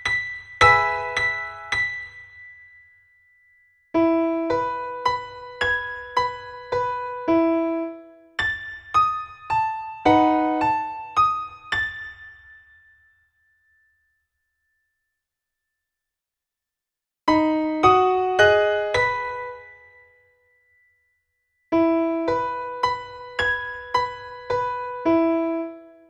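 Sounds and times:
solo piano piece: 0.0s - 2.8s, 4.0s - 12.9s, 17.3s - 20.3s, 21.7s - 26.0s.

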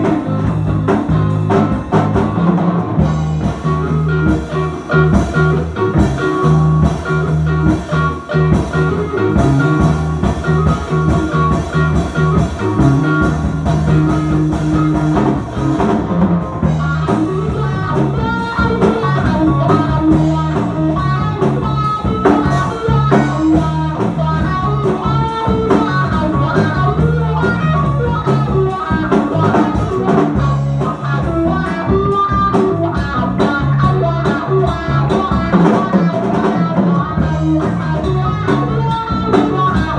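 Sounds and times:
drum kit beat: 0.0s - 39.9s
electric bass: 0.0s - 39.9s
electric guitar: 0.0s - 39.9s.

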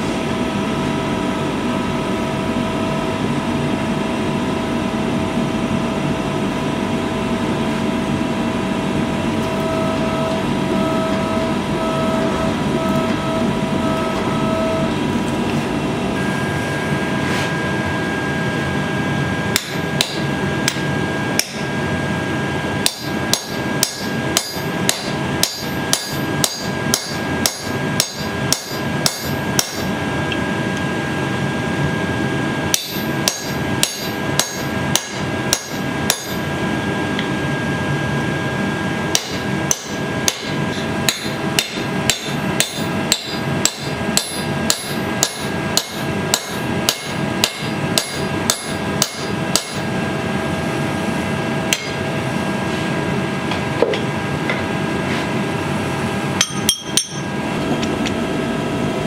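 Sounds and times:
steady background hum: 0.0s - 59.0s
hammer striking steel on anvil: 19.5s - 21.7s, 22.8s - 29.9s, 32.7s - 36.5s, 39.1s - 49.9s, 51.7s - 52.0s, 56.4s - 57.3s
hammer striking a handled tool: 22.8s - 29.9s, 39.2s - 49.8s, 51.7s - 52.0s, 56.4s - 57.3s.

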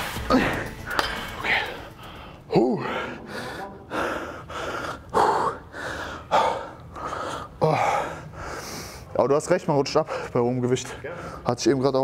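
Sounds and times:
man breathing hard: 0.3s - 9.1s.

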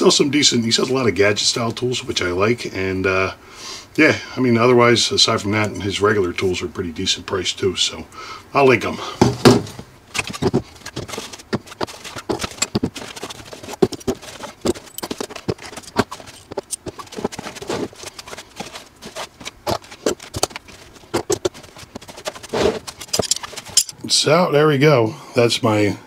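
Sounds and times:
tools pulled from fabric bag: 22.4s - 23.9s.

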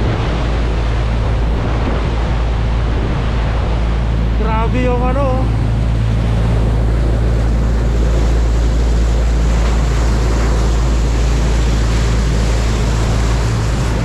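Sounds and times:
low engine drone: 0.0s - 14.0s
wake water rushing and splashing: 0.0s - 14.0s
wind buffeting microphone: 0.0s - 14.0s.

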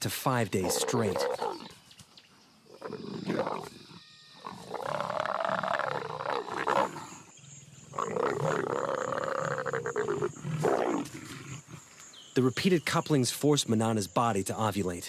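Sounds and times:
leopards growling: 0.5s - 1.8s, 2.7s - 12.0s.

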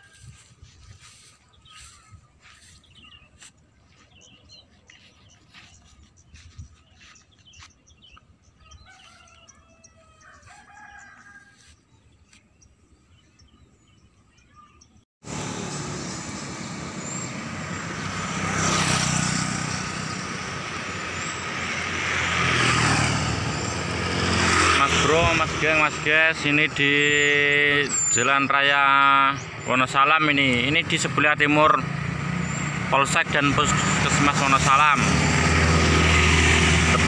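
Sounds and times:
vehicle engine: 0.0s - 9.4s, 10.2s - 12.4s, 15.2s - 28.1s, 29.3s - 37.0s
rooster crowing: 8.6s - 11.8s.

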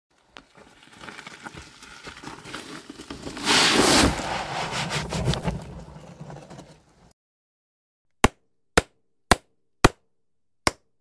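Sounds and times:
stones pattering and trickling: 0.2s - 3.4s
soil load pouring out: 0.2s - 6.9s
wheelbarrow stones rattling: 0.4s - 4.4s, 5.0s - 7.1s.

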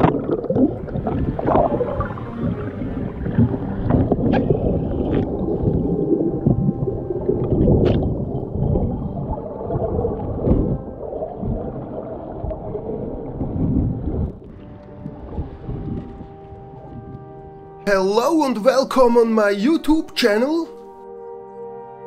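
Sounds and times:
underwater gurgling water: 0.0s - 17.3s.

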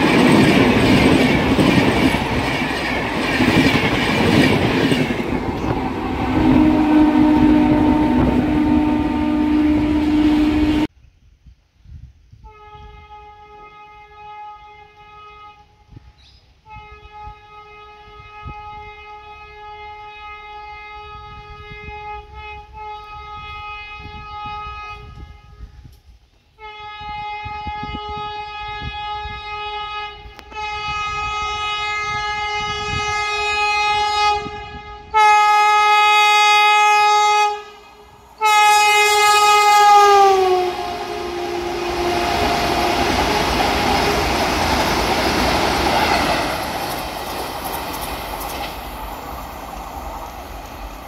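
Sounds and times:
train coaches rumbling past: 0.0s - 10.9s, 28.7s - 51.0s
train horn blasts: 5.5s - 10.9s, 12.3s - 47.0s.

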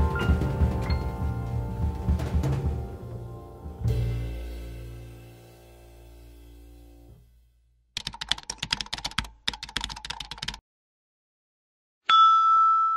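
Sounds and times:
background music: 0.0s - 7.2s
rapid keyboard clicks: 8.0s - 10.6s.

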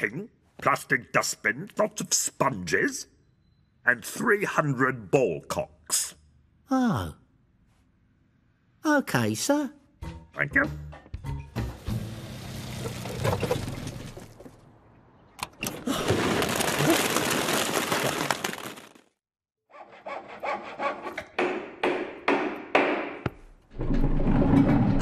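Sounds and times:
rasping sawing strokes: 19.7s - 21.3s.

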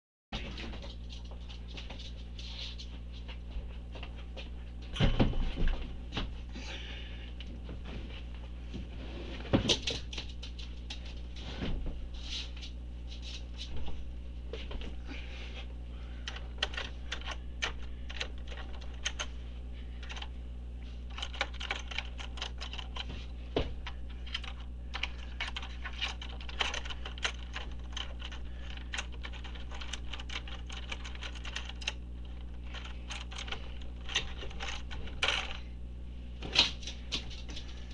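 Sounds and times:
steady low hum: 0.4s - 37.9s
keyboard keys clattering: 16.3s - 19.3s, 21.1s - 23.1s, 23.8s - 35.6s.

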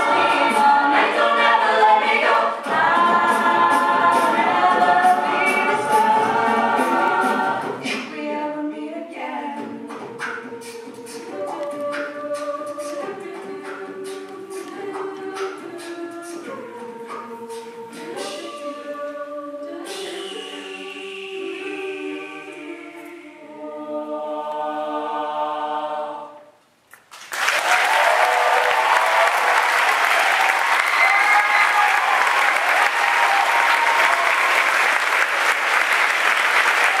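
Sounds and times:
a cappella group singing: 0.0s - 26.6s
audience applauding: 27.1s - 37.0s
audience cheering: 27.3s - 37.0s.

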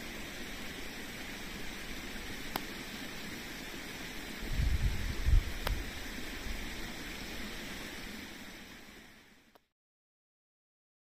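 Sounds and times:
steady outdoor hiss: 0.0s - 9.7s
wind buffeting microphone: 4.4s - 6.7s.

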